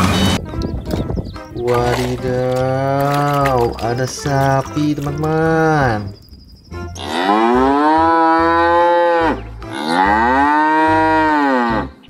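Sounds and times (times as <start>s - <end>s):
cow mooing: 6.9s - 12.0s.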